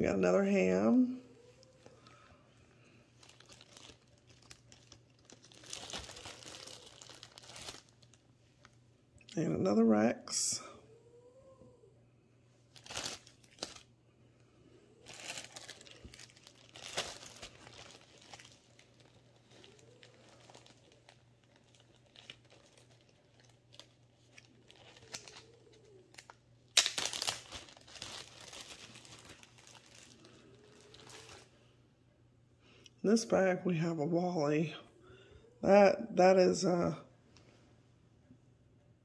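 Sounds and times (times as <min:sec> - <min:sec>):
plastic bag crinkling: 0:01.0 - 0:08.8, 0:12.7 - 0:13.9, 0:14.9 - 0:31.5.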